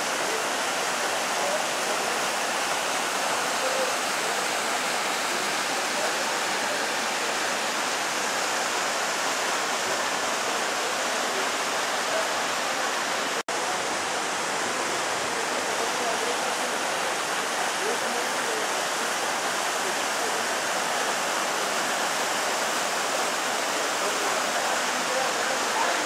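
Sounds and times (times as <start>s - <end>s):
waterfall and rapids rushing: 0.0s - 26.0s.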